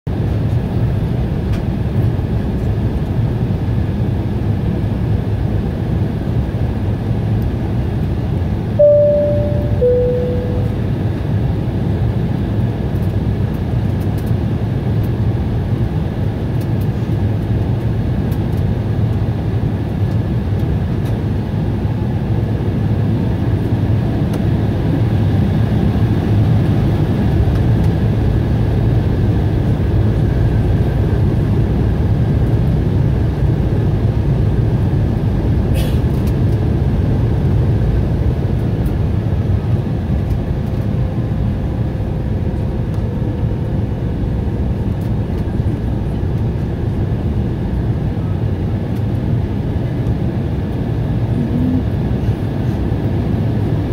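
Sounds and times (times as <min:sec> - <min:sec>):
jet engine hum: 0:00.1 - 0:53.9
faint steady whine: 0:08.8 - 0:11.1
low rumble: 0:08.8 - 0:11.2.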